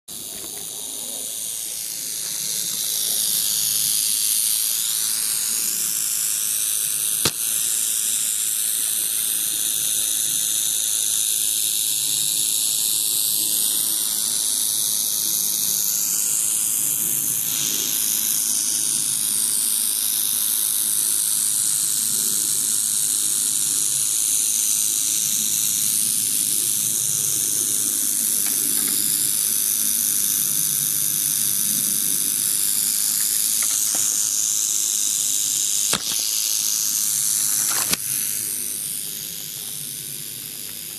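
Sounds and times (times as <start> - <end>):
rattlesnake rattling: 0.0 - 40.9
sharp click: 7.2 - 7.9, 35.7 - 39.9.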